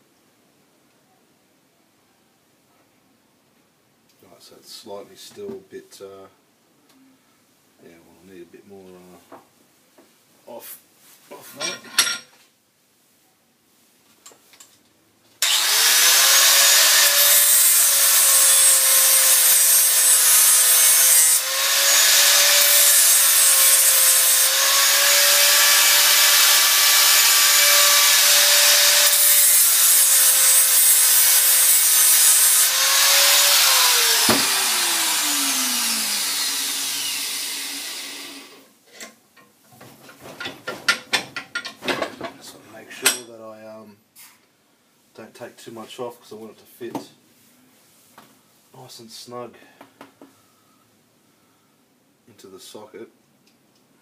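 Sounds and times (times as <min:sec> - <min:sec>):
angle grinder whining: 0:15.4 - 0:38.6
clicks and knocks: 0:39.0 - 0:42.4.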